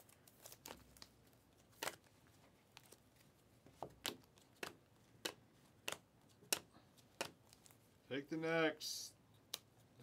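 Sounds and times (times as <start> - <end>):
trading cards snapping: 3.9 - 7.7.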